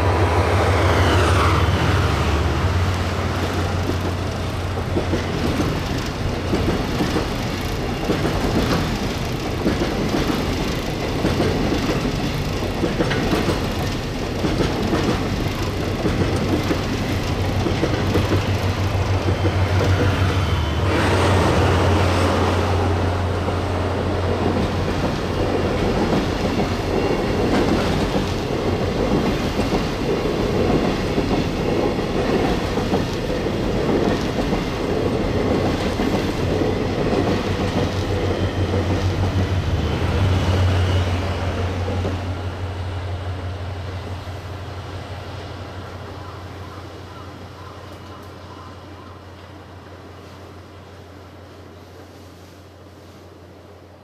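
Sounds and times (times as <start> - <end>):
diesel locomotive engine drone: 0.0 - 54.0
train wheels clacking over rail joints: 2.8 - 22.1, 24.2 - 39.6.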